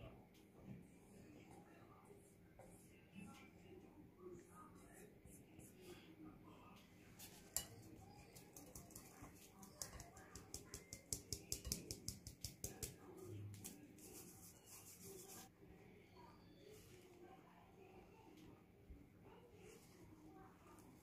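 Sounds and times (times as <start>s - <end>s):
flour sifting through metal sieve: 7.1s - 15.5s
hands rubbing flour into dough: 7.2s - 15.5s.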